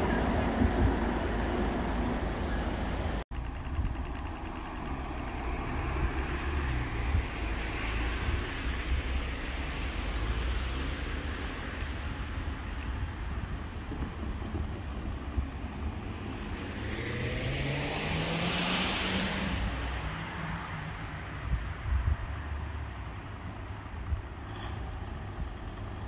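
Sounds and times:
vehicle passing with whine: 0:00.0 - 0:11.5, 0:15.9 - 0:20.7
low vehicle rumble: 0:00.0 - 0:26.0.

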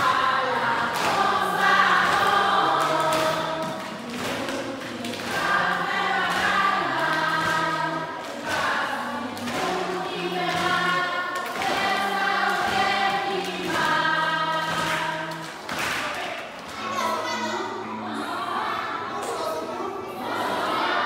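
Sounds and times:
choir singing: 0:00.0 - 0:15.9, 0:20.0 - 0:21.0.

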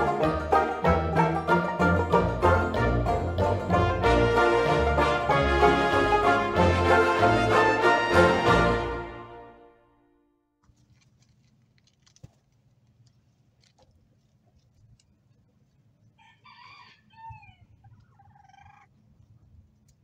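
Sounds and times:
quiet rustling: 0:10.6 - 0:16.2
rooster crowing: 0:16.2 - 0:17.8.

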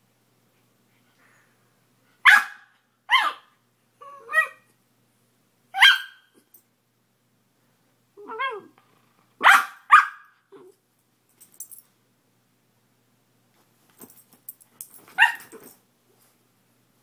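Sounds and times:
puppy barking: 0:02.2 - 0:03.5, 0:05.8 - 0:06.3, 0:09.4 - 0:10.4, 0:15.2 - 0:15.6.

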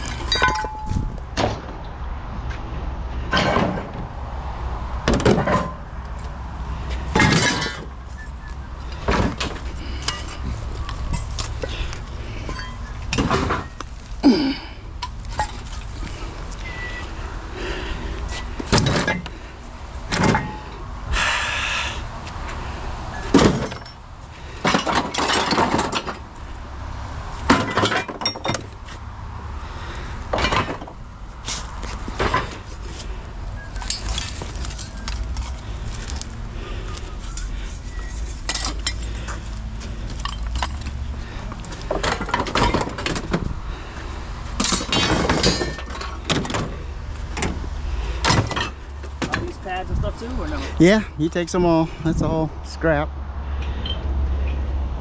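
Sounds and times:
scrap metal clanking: 0:00.0 - 0:01.7, 0:07.1 - 0:13.8, 0:23.2 - 0:26.2, 0:44.6 - 0:46.8.

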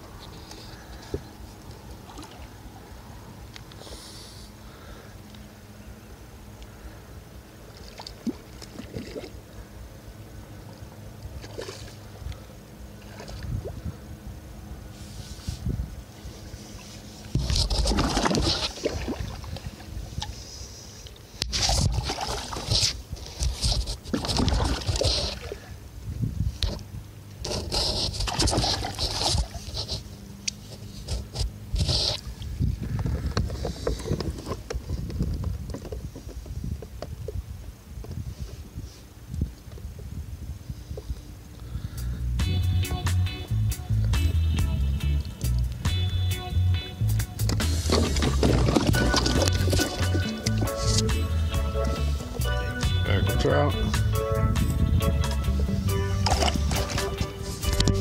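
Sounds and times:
small splashes: 0:07.7 - 0:09.4, 0:11.3 - 0:12.1, 0:13.0 - 0:13.8, 0:16.8 - 0:20.4, 0:21.4 - 0:23.0, 0:24.1 - 0:25.7, 0:56.2 - 0:57.8
water lapping against kayak hull: 0:11.3 - 0:13.9, 0:16.2 - 0:25.8, 0:27.4 - 0:36.4, 0:47.6 - 0:51.2, 0:56.2 - 0:58.0
wind rumble on microphone: 0:13.1 - 0:20.6, 0:21.4 - 0:58.0.

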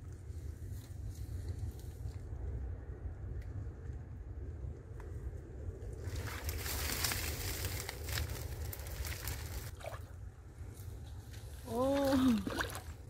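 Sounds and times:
steady low rumble: 0:00.0 - 0:13.0
dry reeds crackling: 0:05.8 - 0:09.8
water splashing: 0:09.2 - 0:10.2, 0:11.7 - 0:13.0.

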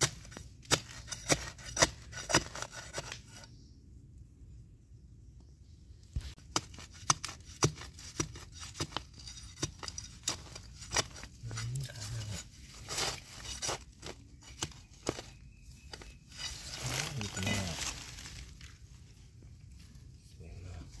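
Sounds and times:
metal tool scraping sandy soil: 0:00.0 - 0:03.5, 0:06.3 - 0:18.4.

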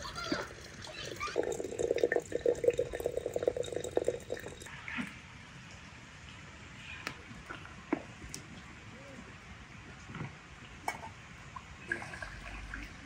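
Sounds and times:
liquid pouring into container: 0:00.0 - 0:04.7, 0:11.8 - 0:13.0.

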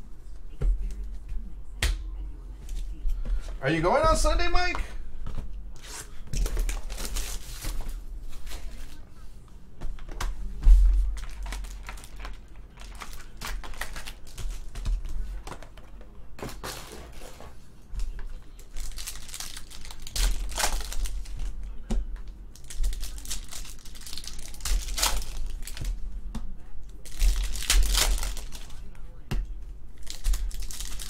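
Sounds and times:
foil wrapper crinkling: 0:06.4 - 0:07.8, 0:11.1 - 0:14.8, 0:18.6 - 0:21.4, 0:22.6 - 0:25.9, 0:27.0 - 0:28.8, 0:30.0 - 0:31.0
packs torn open: 0:11.2 - 0:14.4, 0:18.7 - 0:21.2, 0:22.6 - 0:25.8, 0:27.0 - 0:28.7, 0:30.0 - 0:31.0.

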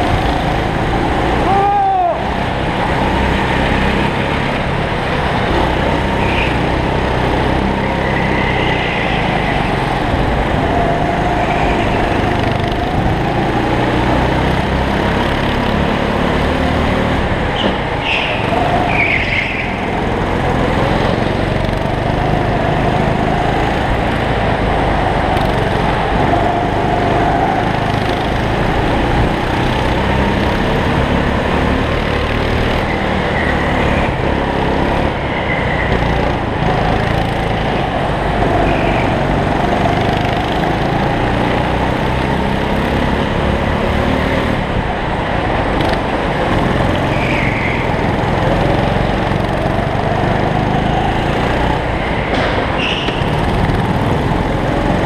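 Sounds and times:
go-kart engine running hard: 0:00.0 - 0:55.0
brief high squeaks: 0:52.8 - 0:53.4.

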